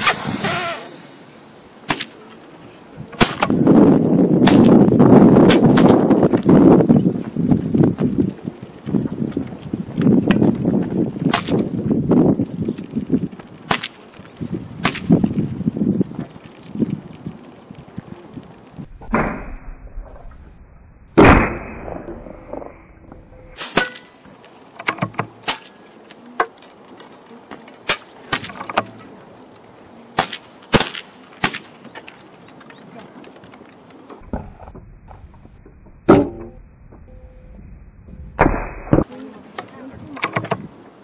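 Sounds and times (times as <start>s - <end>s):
faint sharp cracks: 1.8s - 3.6s, 13.5s - 15.2s, 23.6s - 34.2s.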